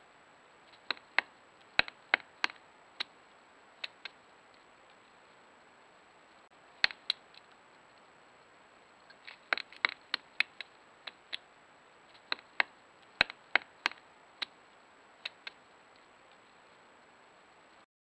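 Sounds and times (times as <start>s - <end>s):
woodpecker tapping on wood: 0.7s - 2.6s, 9.1s - 11.4s, 12.1s - 14.6s.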